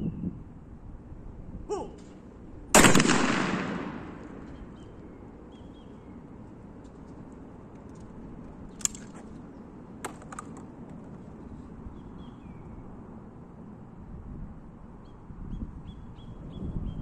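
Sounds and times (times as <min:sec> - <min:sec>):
outdoor background: 0:00.0 - 0:17.0
bird chirps: 0:04.4 - 0:06.3, 0:11.9 - 0:12.8, 0:15.0 - 0:17.0
light clicks of shells handled: 0:07.0 - 0:09.4
shotgun action opening click: 0:08.7 - 0:09.2.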